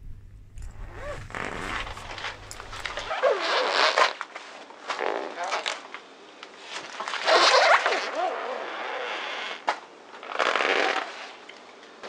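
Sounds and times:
balloon bursting: 0:00.0 - 0:03.1
tyre rolling noise: 0:00.0 - 0:03.1
squeaky rubber: 0:00.0 - 0:04.1, 0:07.2 - 0:09.6.

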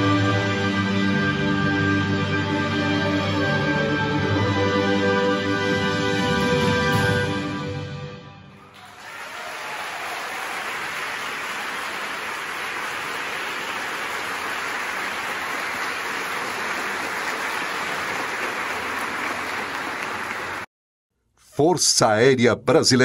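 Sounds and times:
audience applauding: 0:08.6 - 0:20.7.

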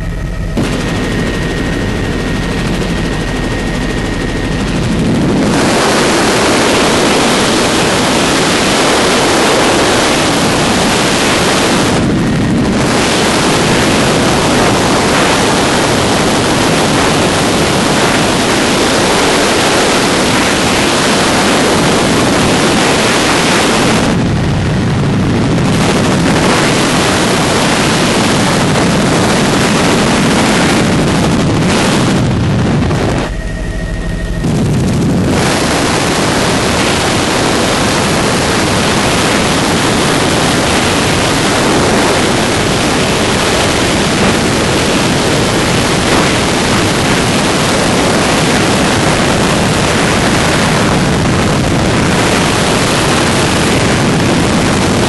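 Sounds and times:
helicopter engine and rotor hum: 0:00.0 - 0:55.0
loud rushing noise: 0:00.0 - 0:55.0.

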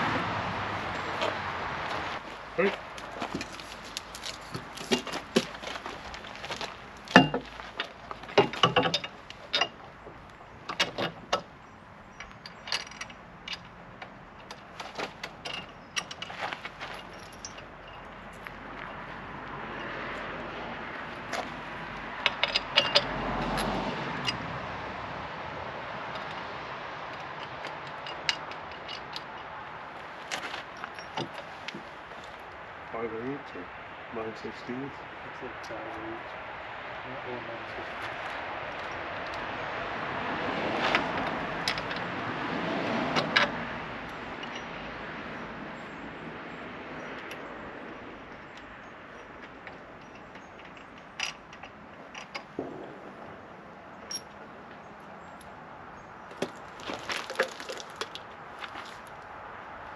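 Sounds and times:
clinks of wrenches and hardware: 0:03.3 - 0:05.6, 0:07.1 - 0:09.8, 0:12.2 - 0:18.5, 0:22.2 - 0:23.6, 0:27.1 - 0:29.6, 0:30.3 - 0:31.9, 0:41.0 - 0:42.1, 0:44.1 - 0:44.8, 0:47.0 - 0:52.8.

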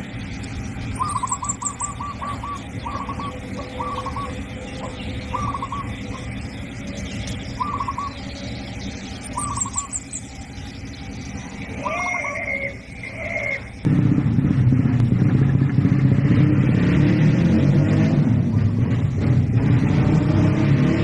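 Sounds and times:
bird calling: 0:00.0 - 0:13.9
steady low hum: 0:00.0 - 0:21.0.

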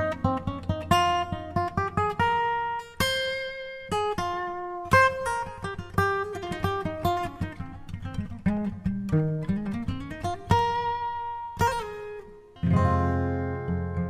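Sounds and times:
acoustic guitar melody: 0:00.0 - 0:14.0.

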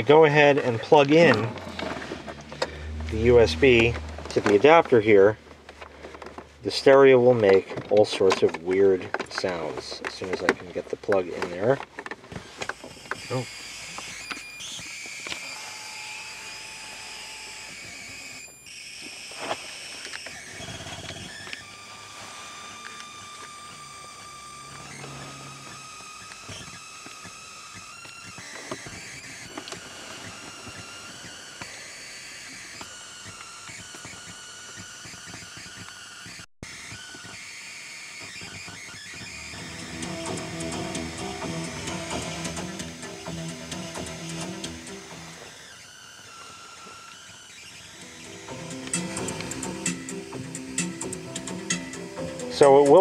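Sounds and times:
high-pitched electronic whine: 0:00.0 - 0:05.4, 0:12.8 - 0:53.0
low electrical buzz: 0:00.0 - 0:05.4, 0:21.3 - 0:27.6
screeching hiss from speakers: 0:12.5 - 0:53.0
music: 0:39.4 - 0:45.4, 0:48.0 - 0:53.0.

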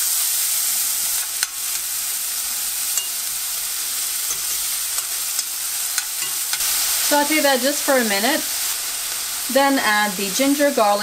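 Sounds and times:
onion sizzling in oil: 0:00.0 - 0:11.0
spoon clicking against pan: 0:01.2 - 0:01.9, 0:02.9 - 0:03.2, 0:04.2 - 0:06.7.

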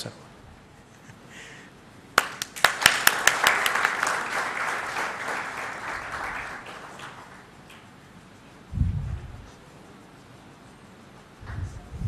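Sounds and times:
audience applauding: 0:02.2 - 0:07.9.

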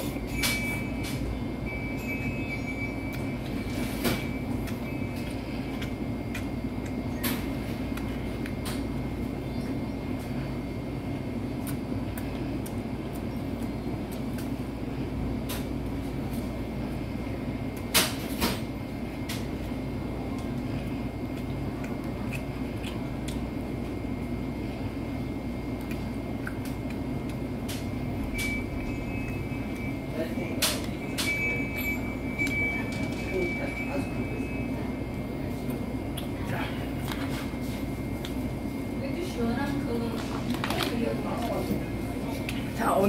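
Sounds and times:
store low hum: 0:00.0 - 0:43.0.

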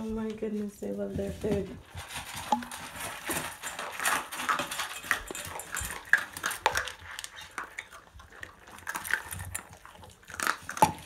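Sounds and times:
puppies crunching food: 0:00.0 - 0:11.0.

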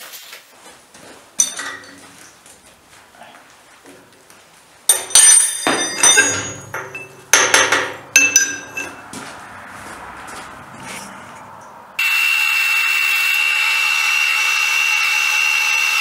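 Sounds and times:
metal tools clanking: 0:01.4 - 0:02.4, 0:04.9 - 0:09.2.

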